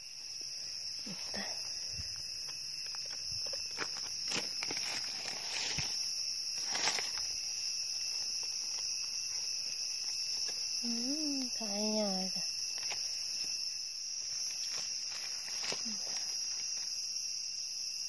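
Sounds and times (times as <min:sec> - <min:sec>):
insect chorus drone: 0:00.0 - 0:18.0.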